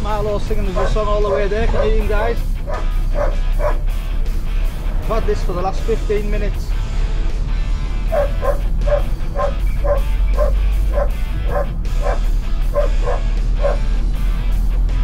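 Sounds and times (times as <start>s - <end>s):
vehicle cabin rumble: 0.0s - 15.0s
dog yipping and whining: 1.7s - 2.0s, 2.7s - 3.8s, 8.1s - 13.8s.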